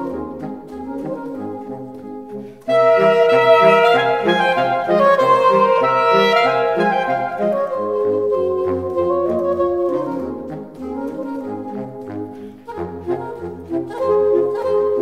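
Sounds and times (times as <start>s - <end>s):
horn section playing chords: 2.7s - 10.6s.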